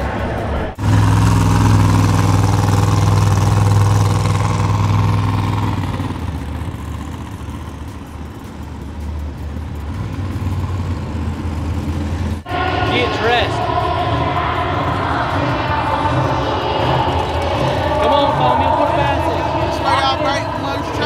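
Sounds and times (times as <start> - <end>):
monster truck engine running: 0.0 - 21.0.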